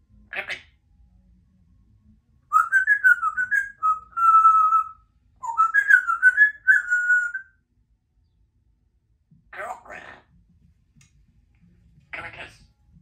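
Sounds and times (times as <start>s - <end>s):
parrot whistling: 2.5s - 7.5s.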